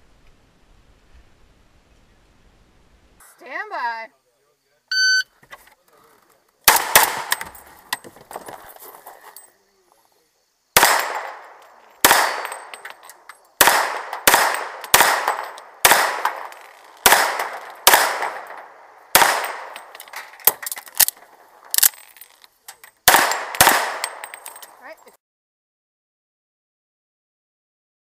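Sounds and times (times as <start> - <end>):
pistol shots: 6.7 - 7.5, 10.8 - 12.8, 13.6 - 19.9, 23.0 - 24.4.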